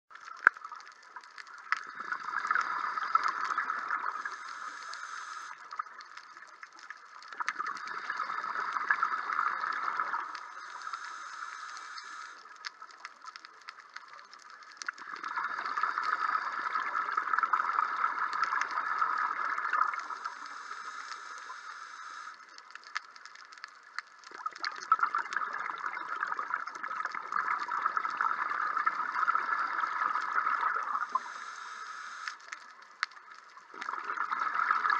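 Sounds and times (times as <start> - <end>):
exhaled bubbles gurgling: 0.1 - 34.9
regulator in-breath hiss: 4.0 - 5.7, 10.3 - 12.6, 19.9 - 22.6, 31.0 - 32.7.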